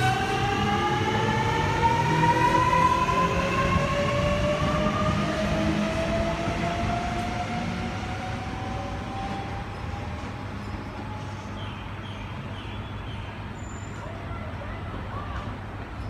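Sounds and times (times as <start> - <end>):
train low rumble: 0.0 - 12.6.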